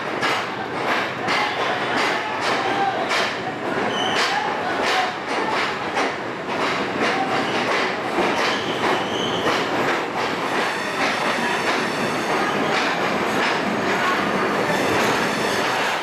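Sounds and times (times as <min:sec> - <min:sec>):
train rumbling over rail joints: 0:00.0 - 0:16.0
faint wheel squeal: 0:03.8 - 0:04.3, 0:08.5 - 0:09.5.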